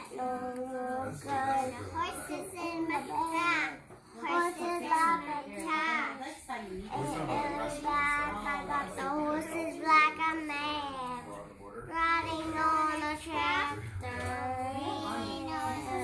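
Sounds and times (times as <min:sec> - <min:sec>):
young child singing: 0:00.1 - 0:05.7, 0:11.9 - 0:16.0.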